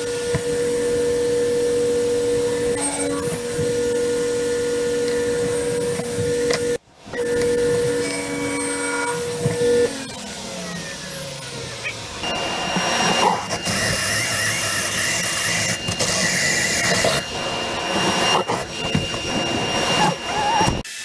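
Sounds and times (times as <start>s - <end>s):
cordless drill whining: 0.0s - 21.0s
table saw spinning down: 0.0s - 21.0s.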